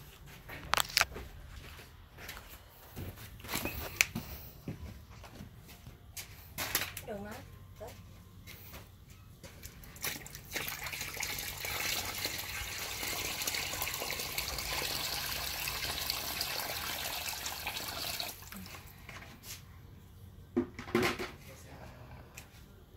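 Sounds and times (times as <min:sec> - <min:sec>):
water pouring into a pool: 0:10.1 - 0:18.7.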